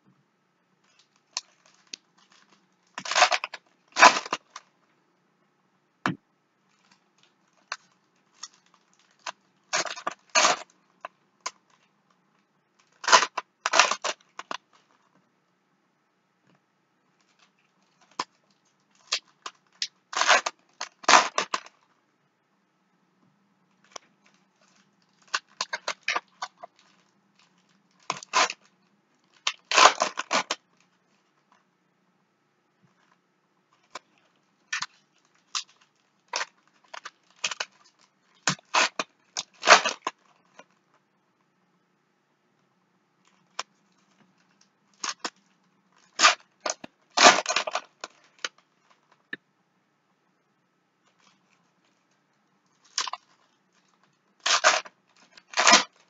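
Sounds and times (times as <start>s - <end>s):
foil wrappers crinkling and tearing: 0.9s - 4.6s, 6.7s - 10.8s, 12.8s - 14.9s, 17.2s - 21.8s, 23.8s - 31.5s, 33.8s - 40.6s, 43.3s - 49.0s, 52.7s - 56.0s.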